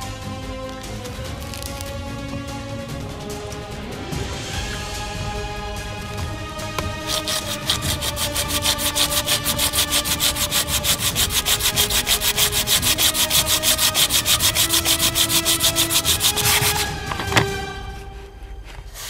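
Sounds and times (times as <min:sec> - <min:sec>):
sanding pad rubbing resin: 0:01.4 - 0:01.8, 0:06.8 - 0:17.0.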